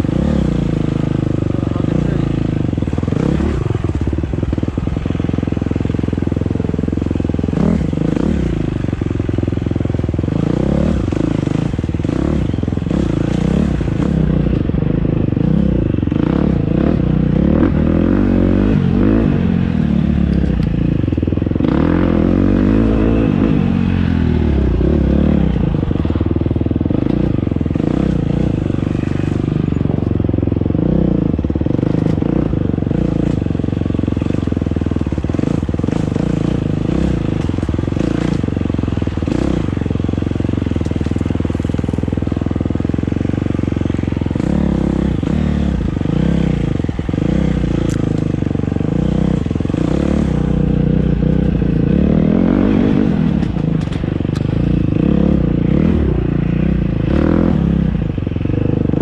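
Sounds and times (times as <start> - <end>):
dirt bike engine revving: 0.0 - 8.9, 21.6 - 26.3, 30.8 - 58.0.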